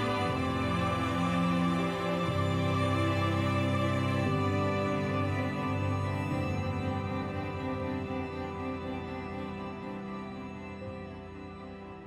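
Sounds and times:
slow music of held chords: 0.0 - 12.0.

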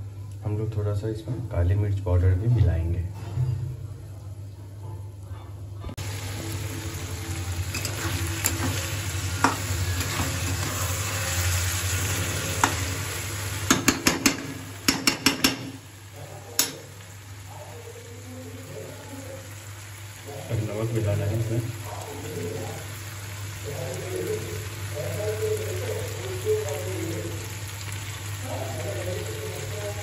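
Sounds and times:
chicken sizzling in a pan: 6.0 - 30.0
spatula clanking against pan: 13.7 - 15.8.

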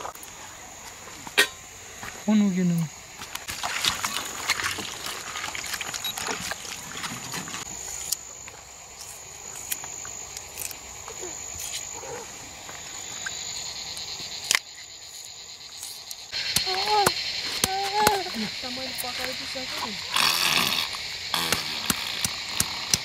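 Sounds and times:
high-pitched insect drone: 0.0 - 23.0
sharp clicks and crackles: 19.1 - 23.0.

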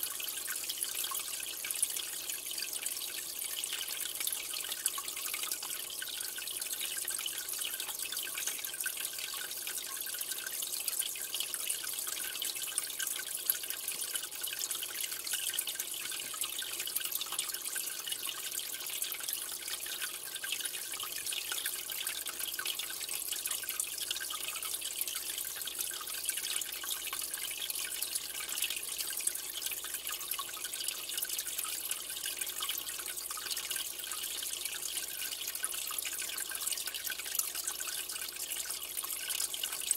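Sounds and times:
water trickling and dripping: 0.0 - 39.9.

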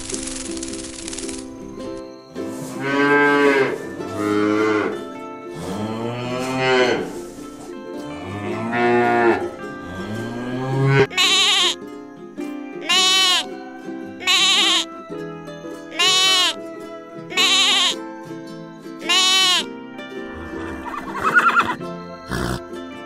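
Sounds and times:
soft background music: 0.0 - 23.0
cattle mooing: 5.6 - 7.2, 8.1 - 11.8
wavering bleat: 10.7 - 11.8, 12.9 - 13.5, 14.2 - 14.9, 15.9 - 16.6, 17.3 - 18.0, 19.0 - 19.7.

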